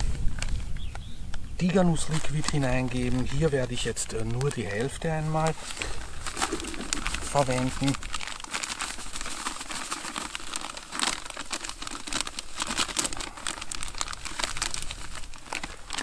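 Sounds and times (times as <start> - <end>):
plastic pouch crinkling: 0.0 - 16.0.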